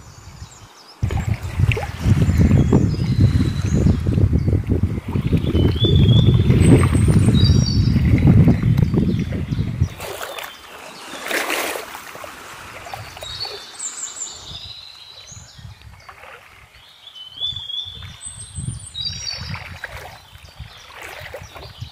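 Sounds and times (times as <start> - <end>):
water lapping against stone bank: 1.0 - 18.4, 19.1 - 21.9
bird chirps: 5.3 - 11.4, 12.9 - 16.2.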